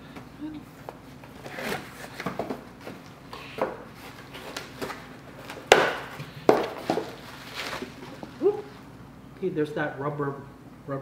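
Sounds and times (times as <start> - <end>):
sharp knocks on cardboard box: 5.7 - 7.2
cardboard flaps scraping and rustling: 6.5 - 8.4.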